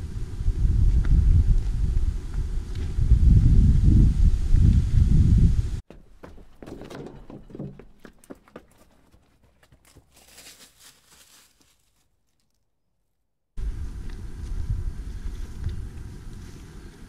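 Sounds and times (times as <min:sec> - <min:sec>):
wind on microphone: 0:00.0 - 0:05.8, 0:13.6 - 0:17.0
footsteps crunching on dirt trail: 0:05.8 - 0:12.6.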